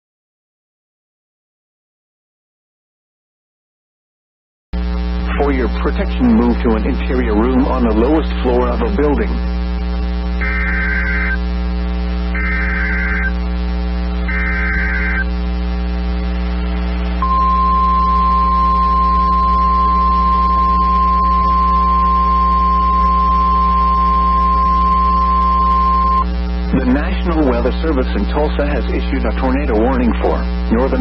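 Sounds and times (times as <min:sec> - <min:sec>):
low electrical hum: 0:04.8 - 0:31.0
digital header tone bursts: 0:10.4 - 0:11.4, 0:12.3 - 0:13.4, 0:14.3 - 0:15.3, 0:17.2 - 0:28.7
steady warning alarm tone: 0:10.4 - 0:11.4, 0:12.3 - 0:13.4, 0:14.2 - 0:15.3, 0:17.2 - 0:26.3.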